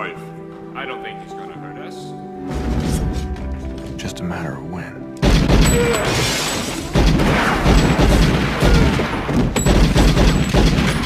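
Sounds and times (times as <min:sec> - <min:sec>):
rapid gunfire: 0:05.2 - 0:11.0.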